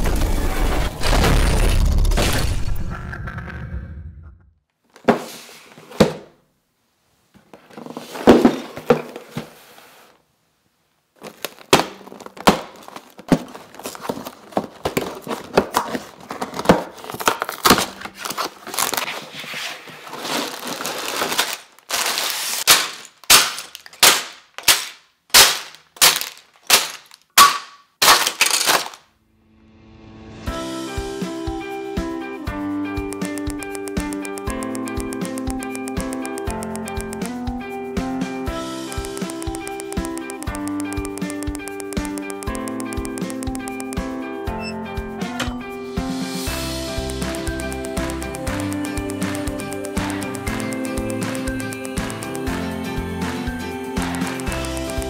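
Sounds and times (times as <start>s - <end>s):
plastic bags crinkling: 11.2s - 27.4s
sharp clacks: 33.2s - 37.3s, 38.9s - 44.0s.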